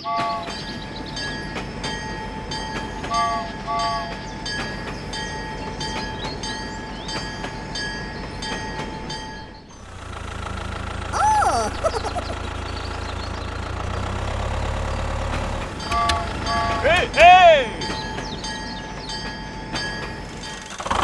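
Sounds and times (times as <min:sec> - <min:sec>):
toy train chugging with whistle: 0:11.1 - 0:12.4.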